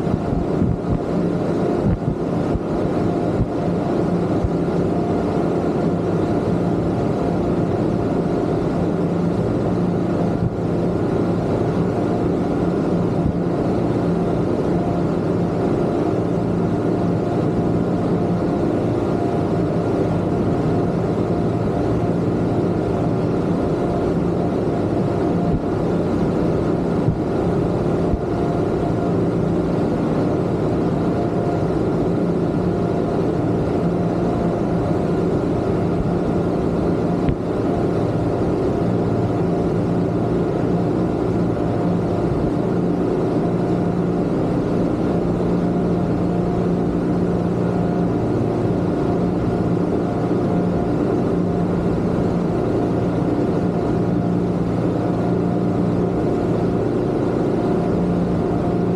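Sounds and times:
water and wind rushing: 0:00.0 - 0:05.6
outboard motors droning: 0:00.0 - 0:58.9.

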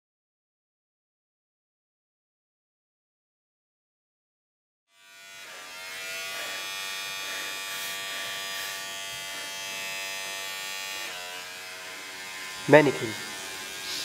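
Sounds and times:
electric beard trimmer buzzing: 0:04.9 - 0:14.0.

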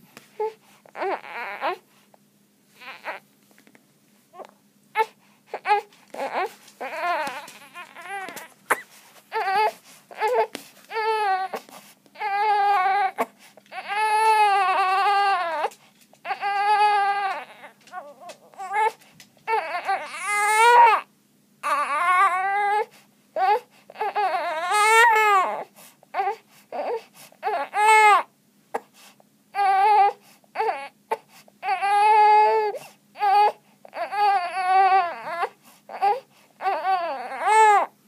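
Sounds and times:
infant crying: 0:00.4 - 0:01.8, 0:02.8 - 0:03.2, 0:04.4 - 0:28.3, 0:29.5 - 0:37.9
infant breathing: 0:04.4 - 0:12.3.

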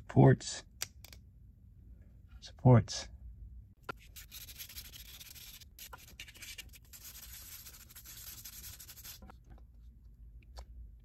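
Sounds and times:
sandpaper rubbing: 0:04.0 - 0:09.3.

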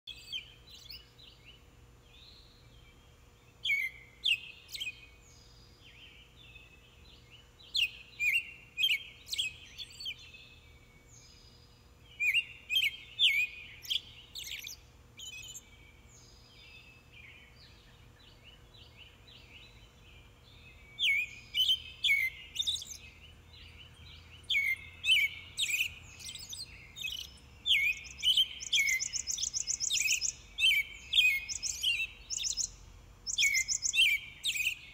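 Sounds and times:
small birds chirping: 0:00.1 - 0:34.9
rapid high bird trill: 0:25.5 - 0:34.8.

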